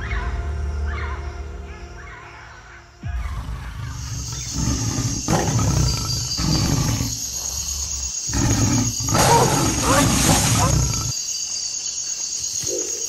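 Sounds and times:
deep animal roars: 3.0 - 11.1.

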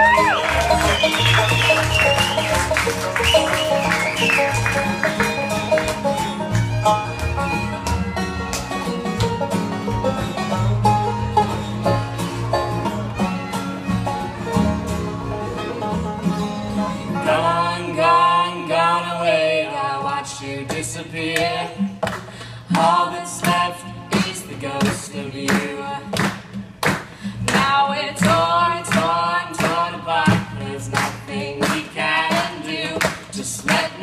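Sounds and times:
upright bass notes: 0.0 - 19.4
banjo picking: 0.0 - 34.0
strummed acoustic guitar: 0.0 - 34.0.

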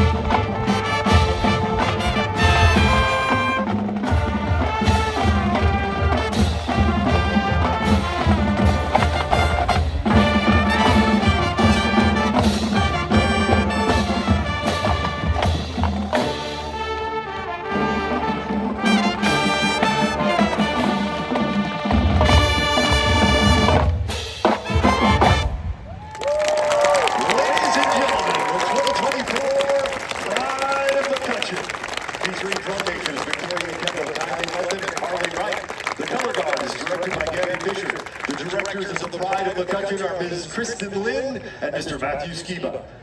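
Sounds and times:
marching drumline percussion: 0.0 - 16.9, 17.6 - 25.7
brass section: 0.0 - 40.0.

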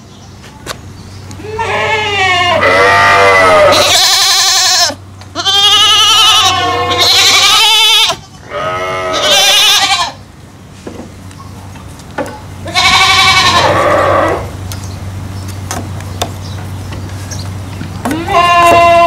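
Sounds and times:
goats bleating: 1.4 - 10.2, 12.6 - 14.6, 18.0 - 19.0.

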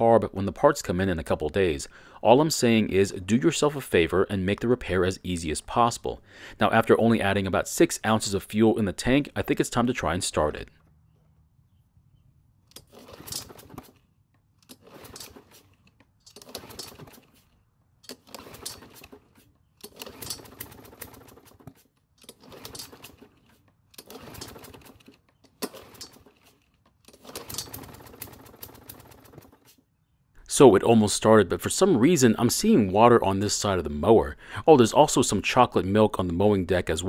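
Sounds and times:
mower engine cranking on pull-start: 12.7 - 29.8.

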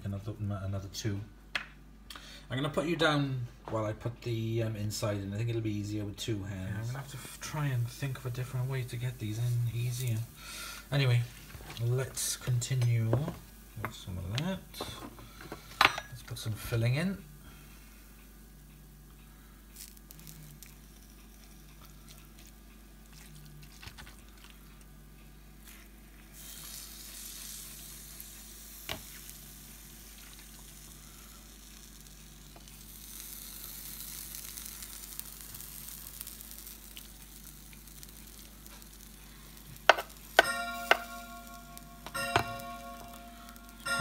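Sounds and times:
faint sizzle: 2.1 - 44.0
ringing tone: 40.4 - 44.0.

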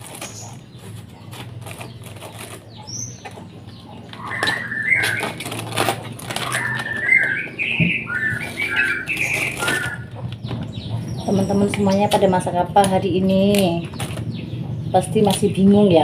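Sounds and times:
caged songbirds chirping: 0.0 - 16.0
cabbage leaves rustling: 4.2 - 7.4, 8.1 - 10.0.

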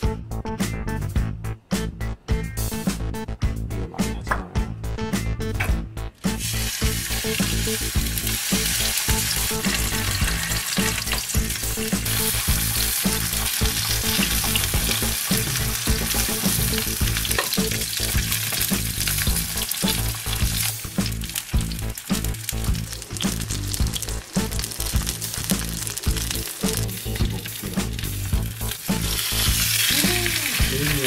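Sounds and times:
fish sizzling in oil: 6.4 - 31.0.

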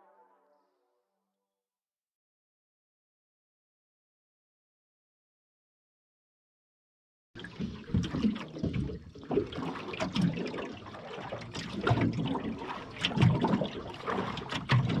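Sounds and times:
seawater splashing and lapping: 7.4 - 15.0.

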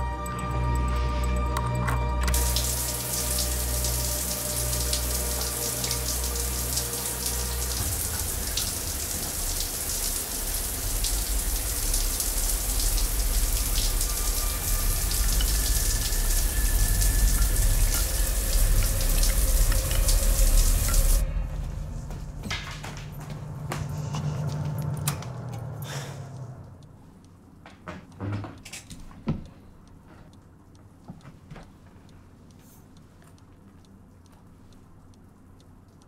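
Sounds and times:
low rumbling drone: 0.0 - 27.0
rain-like hiss with crackles: 2.3 - 21.7, 33.0 - 36.0.

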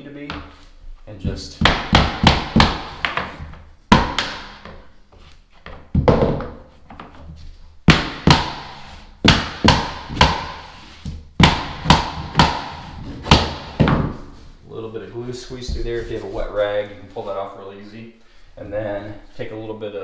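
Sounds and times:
hammer knocking on plastic block: 1.2 - 3.3, 11.4 - 14.1.

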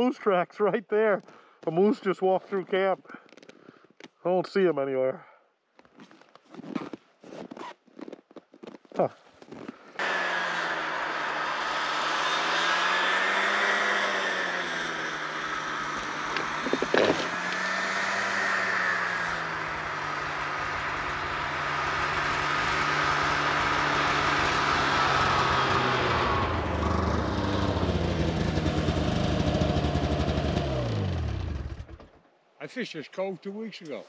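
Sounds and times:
snowmobile engine running: 10.0 - 32.0.

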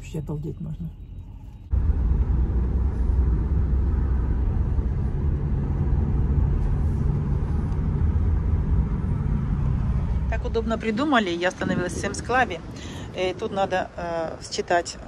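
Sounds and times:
road and engine rumble in a van: 0.0 - 15.0.

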